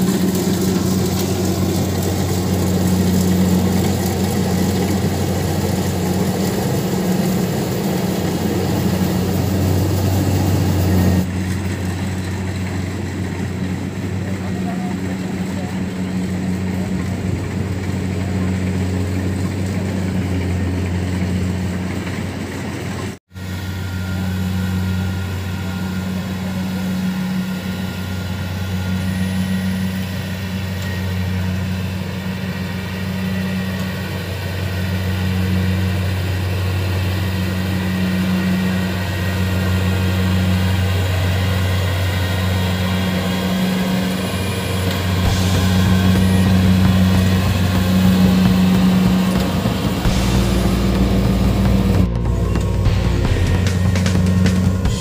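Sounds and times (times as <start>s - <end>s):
diesel engine humming: 0.0s - 55.0s.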